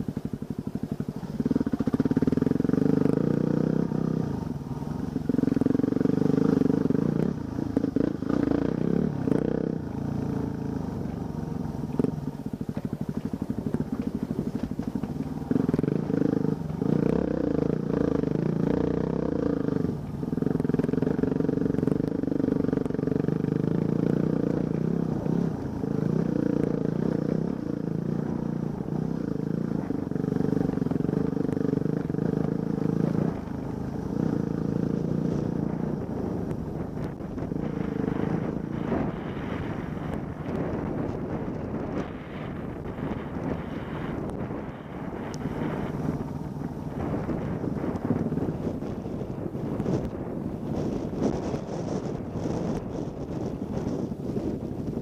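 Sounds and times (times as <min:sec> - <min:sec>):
off-road vehicle engine revving: 0:00.0 - 0:55.0.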